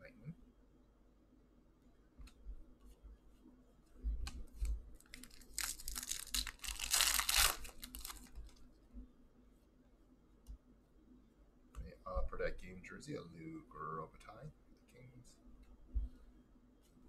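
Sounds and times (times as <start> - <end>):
foil wrapper tearing and crinkling: 5.0 - 8.6.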